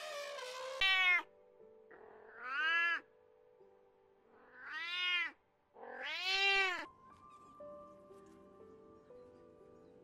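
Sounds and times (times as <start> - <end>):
cat meowing: 0.8 - 1.3, 1.9 - 3.1, 4.4 - 6.9.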